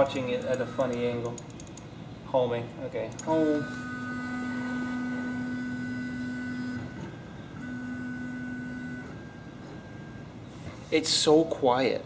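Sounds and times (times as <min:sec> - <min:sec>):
stepper motors whining: 0:03.2 - 0:10.4.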